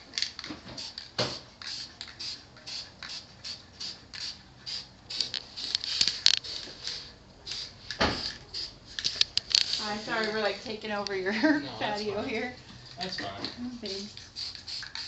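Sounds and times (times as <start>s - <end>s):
spray paint can hissing: 0.8s - 10.4s, 13.9s - 15.0s.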